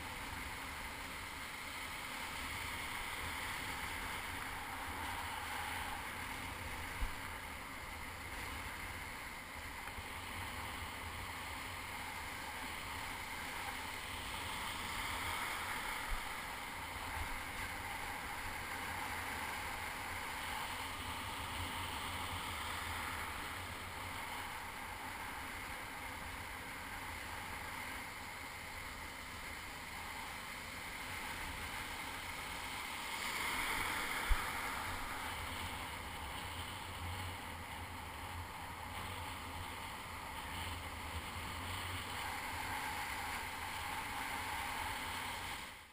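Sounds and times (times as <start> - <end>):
wind rumbling on microphone: 1.6 - 45.8
shallow surf washing: 10.1 - 37.3.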